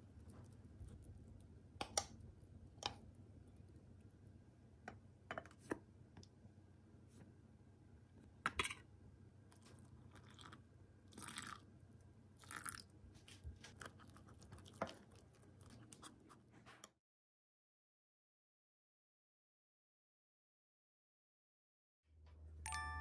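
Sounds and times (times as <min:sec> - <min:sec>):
water pouring: 0:10.1 - 0:11.6, 0:12.4 - 0:12.9.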